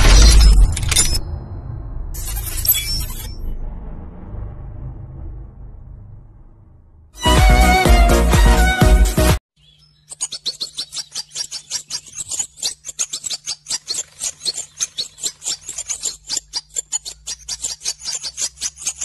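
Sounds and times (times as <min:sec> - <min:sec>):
rapid high-pitched chirping: 0:09.6 - 0:19.0.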